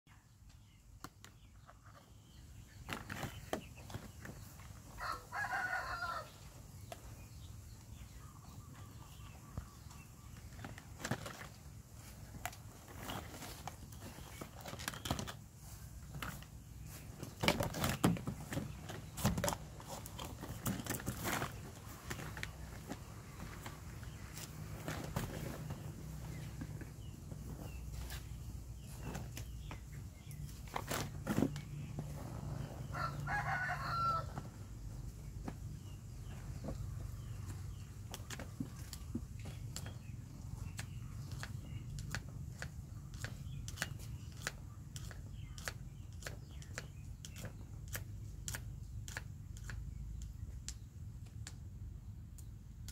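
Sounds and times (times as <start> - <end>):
rooster crowing: 5.0 - 6.4, 32.9 - 34.5.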